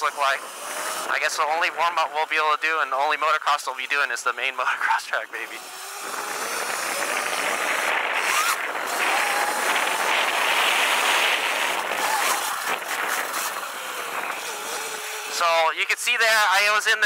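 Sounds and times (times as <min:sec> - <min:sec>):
electric motor whine: 0:00.0 - 0:01.8, 0:05.3 - 0:15.5
wind and tyre noise: 0:00.0 - 0:17.0.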